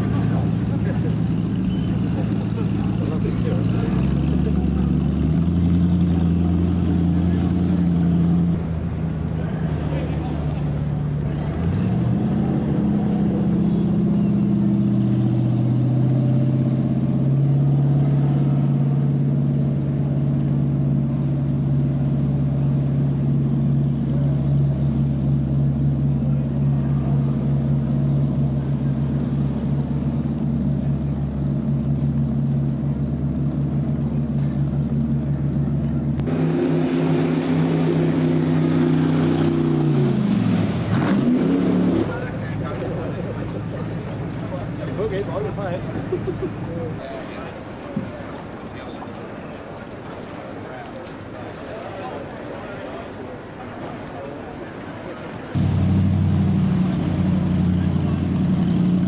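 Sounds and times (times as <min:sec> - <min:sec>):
boat engine running: 0:00.0 - 0:59.0
second engine note: 0:55.6 - 0:59.0.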